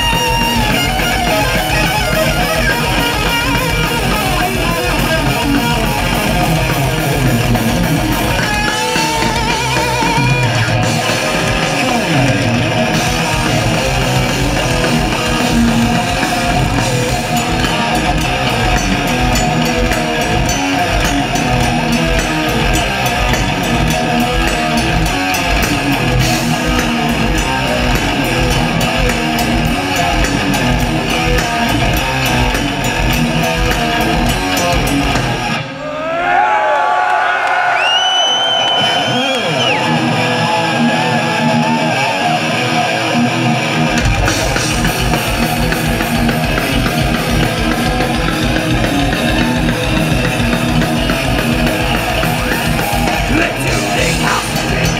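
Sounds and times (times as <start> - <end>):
fast dense drumming: 0.0 - 35.6, 43.5 - 54.9
distorted electric guitars: 0.0 - 36.0, 38.2 - 54.9.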